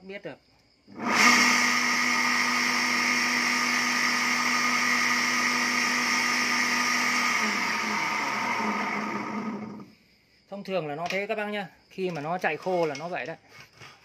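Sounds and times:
electric pump motor humming: 0.9s - 9.9s
motor winding down: 0.9s - 9.9s.

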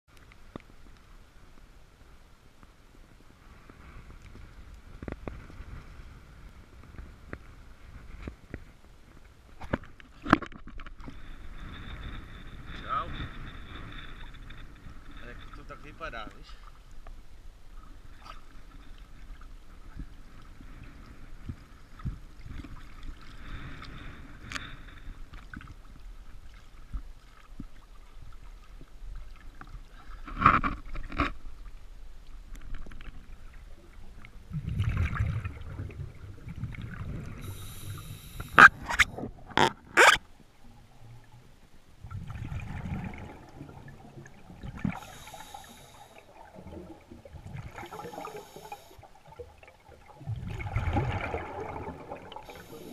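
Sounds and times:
exhaled bubbles underwater: 34.0s - 40.2s, 40.9s - 52.9s
water sloshing: 42.1s - 52.9s.

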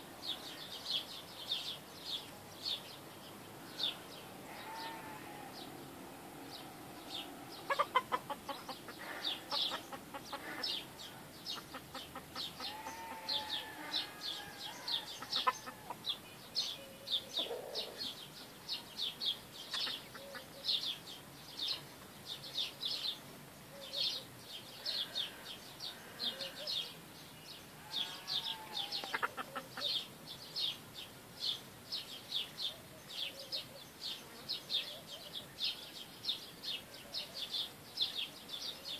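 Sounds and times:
chickens clucking: 7.0s - 16.1s, 17.4s - 18.0s, 19.7s - 20.5s, 28.1s - 30.0s
rooster calls: 12.6s - 16.0s.

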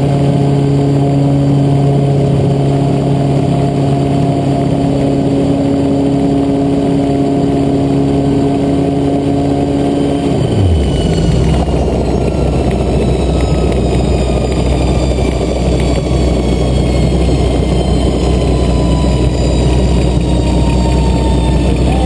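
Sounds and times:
helicopter idling: 0.0s - 22.0s
faint high whine: 5.4s - 22.0s.

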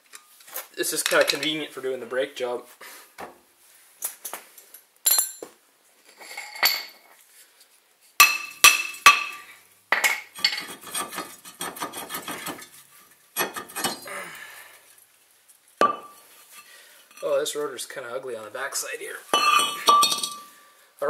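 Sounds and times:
metal tools clinking and rattling: 1.0s - 1.5s, 10.0s - 11.2s, 19.3s - 20.6s.

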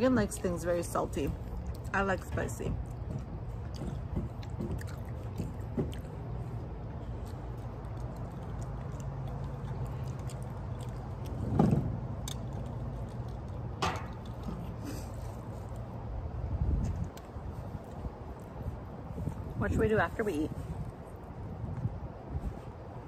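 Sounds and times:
low background rumble: 0.0s - 23.0s
chewing and eating clicks: 1.4s - 15.9s.

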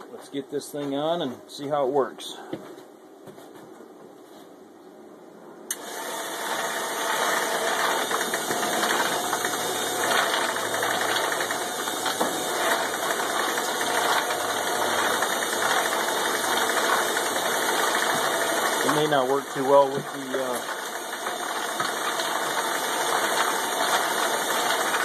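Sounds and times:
ball mill motor running: 5.7s - 25.0s.

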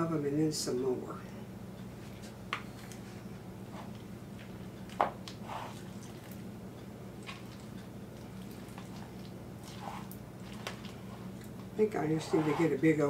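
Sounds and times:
low steady hum: 0.0s - 13.0s
spoon stirring wet noodles: 3.8s - 12.8s.

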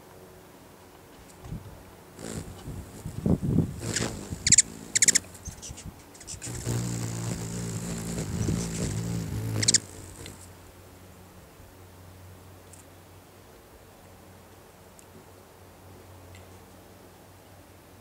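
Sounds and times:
hummingbird chirps: 2.2s - 10.5s
hummingbird wings buzzing: 2.2s - 10.6s.

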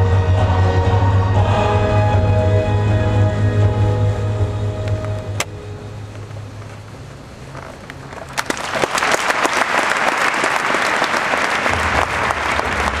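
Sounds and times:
audience applauding: 8.1s - 13.0s.

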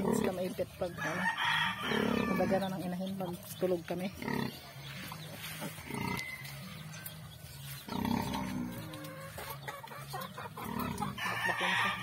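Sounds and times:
pig grunting: 0.0s - 0.6s, 1.8s - 2.7s, 4.1s - 4.7s, 5.7s - 6.3s, 7.8s - 9.4s, 10.5s - 11.2s
chickens clucking: 0.0s - 12.0s.

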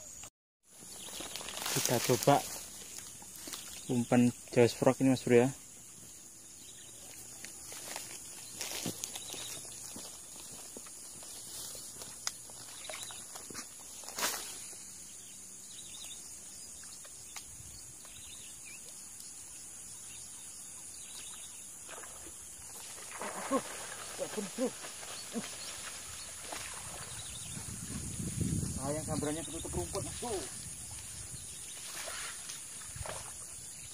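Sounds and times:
splashes and knocks: 21.9s - 27.3s, 31.8s - 33.4s.

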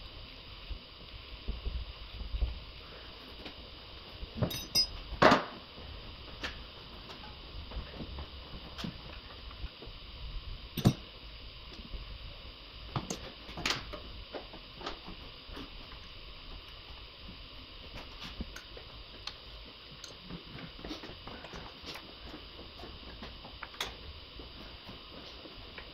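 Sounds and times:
metal tools clinking: 4.4s - 5.0s.

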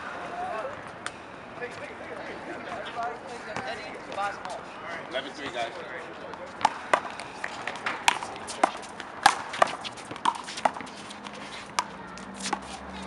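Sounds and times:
footsteps on pavement: 6.2s - 13.0s
handball slaps and bounces: 6.3s - 13.0s.

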